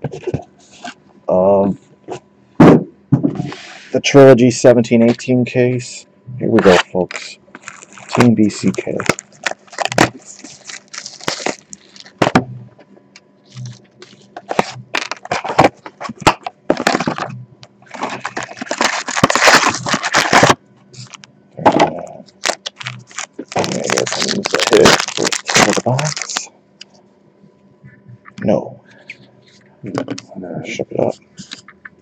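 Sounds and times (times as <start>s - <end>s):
plastic wrap crinkling and tearing: 6.6s - 12.2s, 13.5s - 17.3s, 17.9s - 21.2s, 22.3s - 26.5s
cardboard rustling and clicking: 7.6s - 12.4s, 13.6s - 17.3s, 17.9s - 21.2s.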